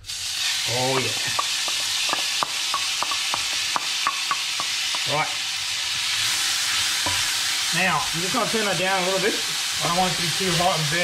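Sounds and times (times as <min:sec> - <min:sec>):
onion sizzling in hot oil: 0:00.0 - 0:11.0
wooden spatula tapping pan: 0:00.9 - 0:05.2.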